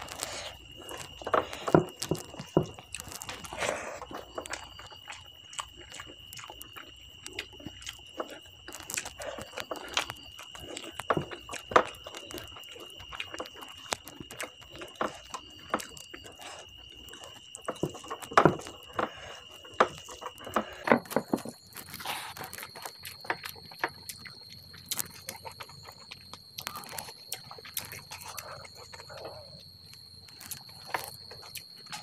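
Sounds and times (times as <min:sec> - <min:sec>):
wet chewing and lip-smacking: 0:00.0 - 0:32.0.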